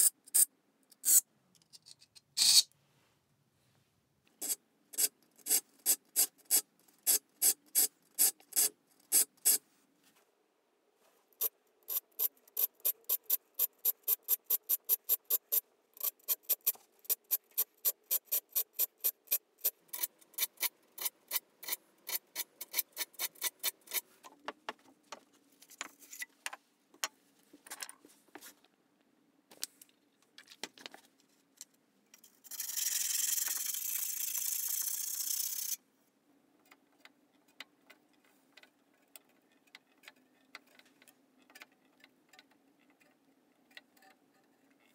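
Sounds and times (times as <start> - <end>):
file rasping on saw teeth: 17.5 - 24.1.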